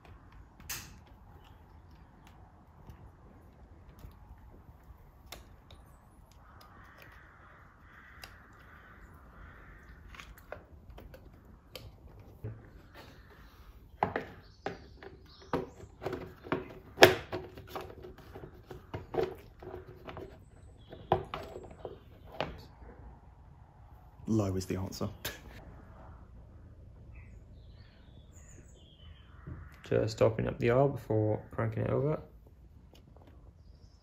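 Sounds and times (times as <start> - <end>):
plastic cover knocking and clacking: 14.0 - 22.6.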